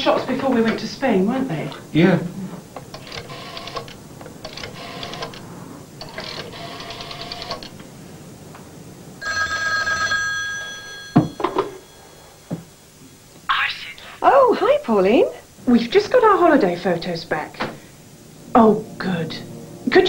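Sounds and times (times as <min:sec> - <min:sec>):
telephone bell ringing: 0:03.0 - 0:03.9, 0:04.5 - 0:05.3, 0:06.0 - 0:07.8, 0:09.2 - 0:12.7.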